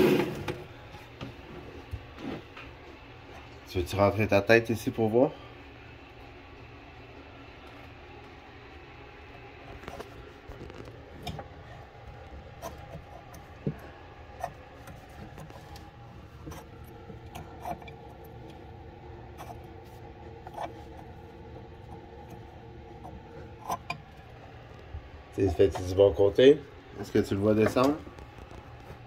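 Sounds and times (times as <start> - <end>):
low steady hum: 0.0 - 29.0
plastic nut rubbing and clicking: 9.6 - 25.0, 27.6 - 29.0.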